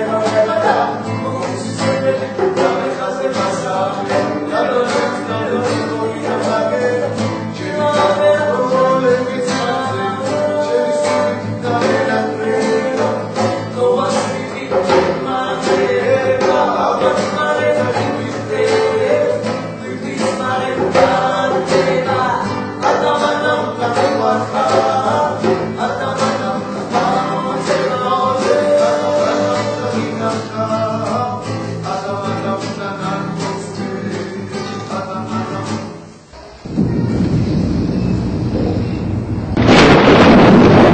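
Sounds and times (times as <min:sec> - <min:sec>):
hand-played djembe drum: 0:00.0 - 0:30.4
two men singing: 0:00.0 - 0:36.1
strummed acoustic guitar: 0:00.0 - 0:40.9.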